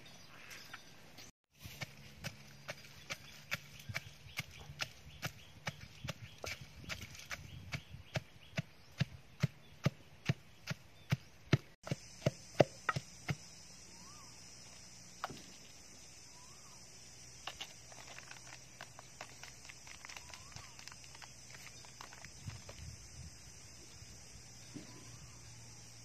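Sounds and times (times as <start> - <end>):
pestle pounding in a mortar: 1.8 - 13.4.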